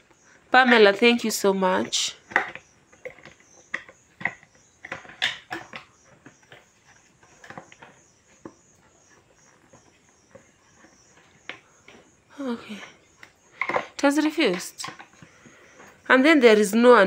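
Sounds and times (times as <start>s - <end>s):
plastic parts knocking and scraping: 1.8s - 12.1s, 12.8s - 16.0s.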